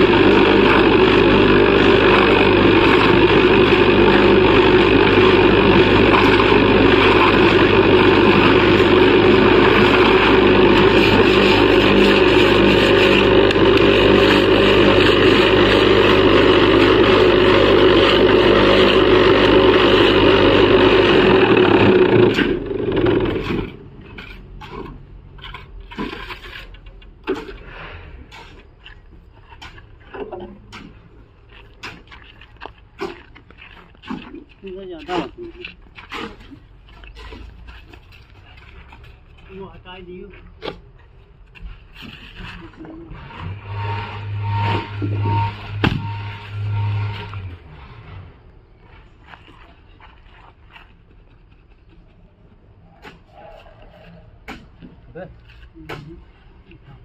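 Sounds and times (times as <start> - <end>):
vibrating table humming: 0.0 - 24.0, 43.3 - 47.7
light scrapes and knocks: 23.4 - 39.3, 41.5 - 48.3.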